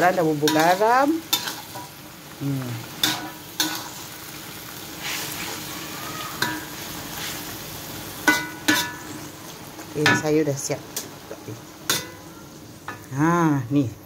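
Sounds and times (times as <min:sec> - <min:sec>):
greens sizzling in a wok: 0:00.0 - 0:14.0
metal spatula scraping a wok: 0:00.3 - 0:02.1, 0:02.9 - 0:04.2, 0:04.8 - 0:05.7, 0:06.4 - 0:07.6, 0:08.2 - 0:09.3
spatula clinking on pan: 0:00.5 - 0:01.9, 0:06.4 - 0:06.7, 0:08.2 - 0:09.1, 0:11.9 - 0:12.2.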